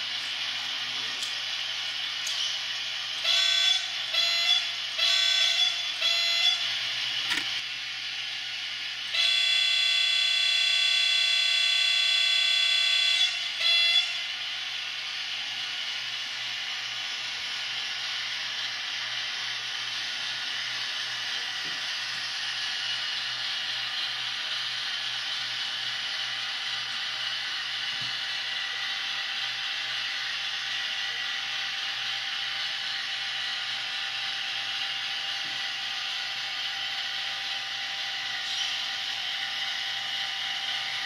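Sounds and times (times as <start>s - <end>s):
locomotive horn blasts: 3.2s - 6.6s, 9.1s - 14.2s.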